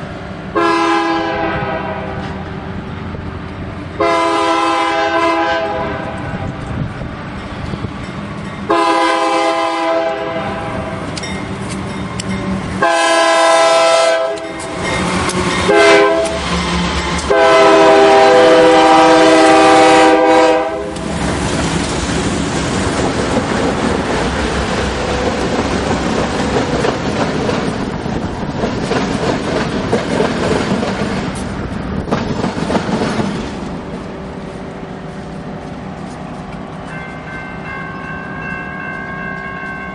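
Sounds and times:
train wheels on rails: 0.0 - 39.9
locomotive air horn: 0.6 - 2.2, 4.0 - 6.2, 8.7 - 10.9, 12.8 - 14.5, 15.7 - 16.4, 17.3 - 21.0.

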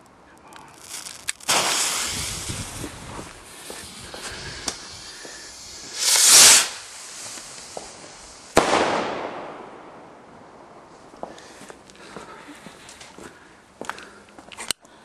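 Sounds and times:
firework rocket whooshing: 0.7 - 10.0
firework bang echoing: 1.4 - 11.4.

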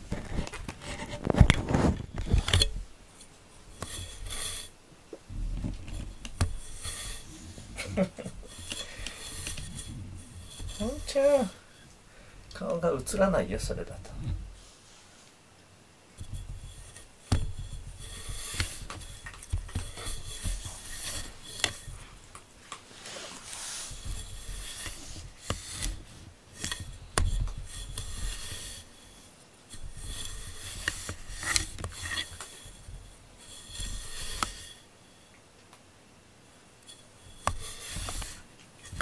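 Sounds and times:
clicks and bumps against camera: 0.0 - 2.8
fur scraping over microphone: 5.3 - 11.6, 22.9 - 26.3.

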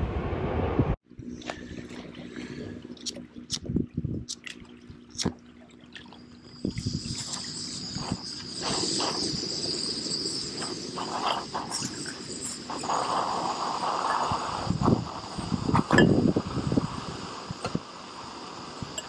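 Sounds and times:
gas burner hissing: 6.4 - 19.0.

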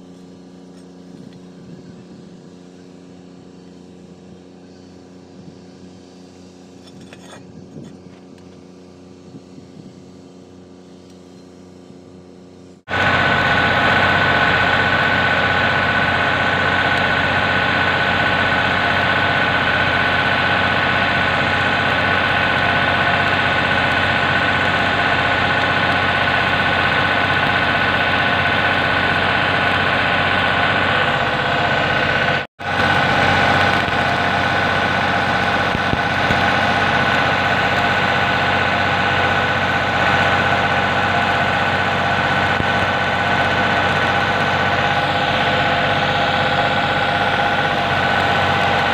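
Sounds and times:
machine hum: 0.0 - 48.9
welding arc crackling: 12.9 - 48.9.

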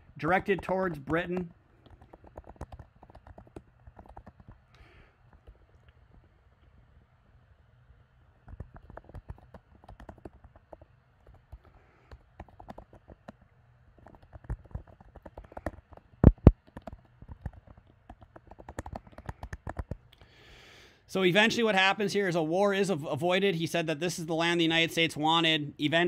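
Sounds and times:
typing on computer keyboard: 0.3 - 5.0, 8.5 - 13.4, 14.0 - 20.1.

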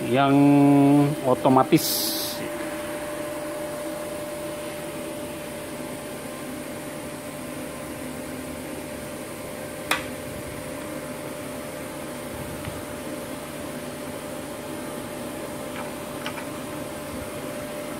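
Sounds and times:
welder electrical hum: 0.0 - 17.9
sharp click: 9.9 - 10.1.

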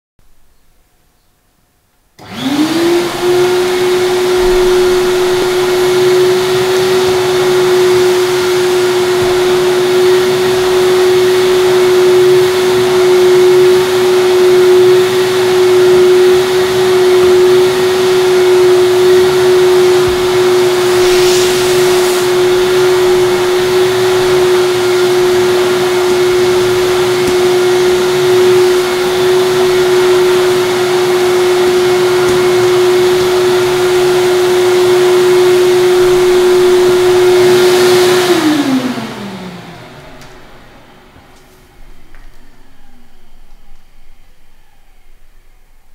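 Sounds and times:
vacuum cleaner running: 2.2 - 45.9.

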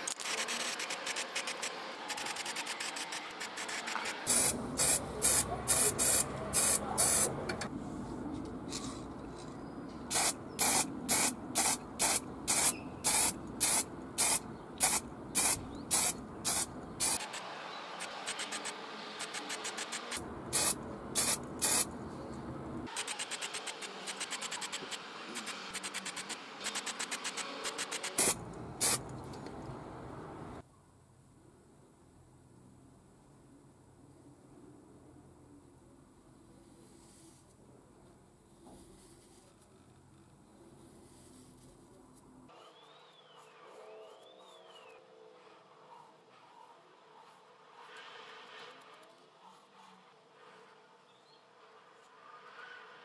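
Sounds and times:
spray paint can bursts: 0.0 - 7.3, 10.1 - 21.9, 22.9 - 29.1.

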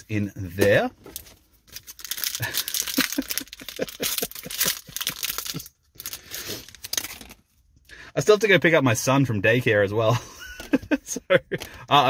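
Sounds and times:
wrapper being torn and crinkled: 0.8 - 7.6.

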